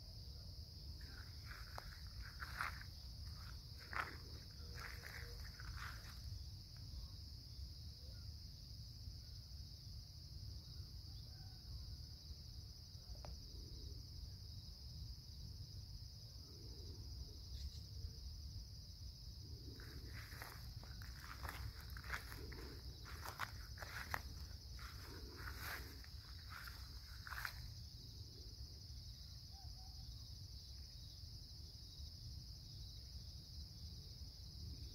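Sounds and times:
crickets and insects chirping: 0.0s - 34.9s
footsteps rustling in grass: 1.0s - 6.4s, 19.6s - 27.8s.

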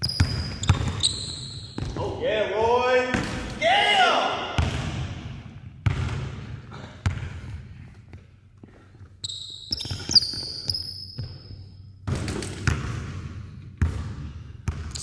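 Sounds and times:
basketball bouncing on hardwood floor: 0.0s - 2.1s, 4.6s - 7.5s, 9.7s - 15.0s
sneakers squeaking on court: 0.0s - 2.2s, 5.8s - 15.0s.

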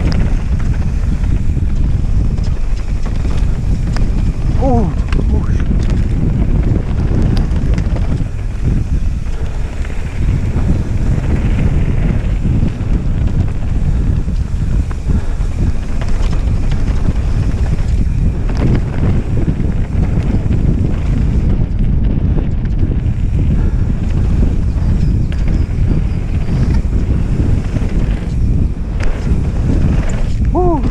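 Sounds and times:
bike clicks and rattles: 0.0s - 30.9s
wind rushing over microphone: 0.0s - 30.9s.

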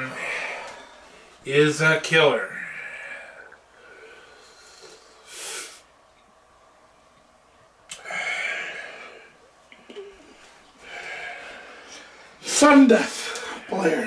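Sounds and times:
man sniffing: 4.5s - 5.9s.

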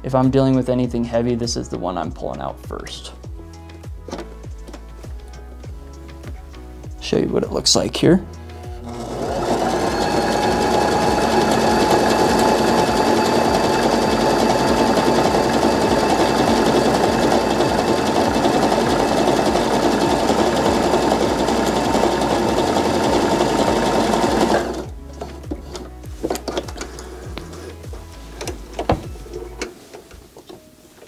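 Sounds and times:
sewing machine running: 8.8s - 24.9s.

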